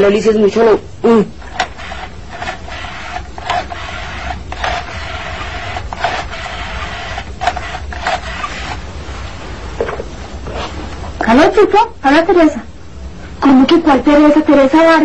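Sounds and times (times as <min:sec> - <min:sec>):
rotary dial whirring: 0:01.4 - 0:09.0.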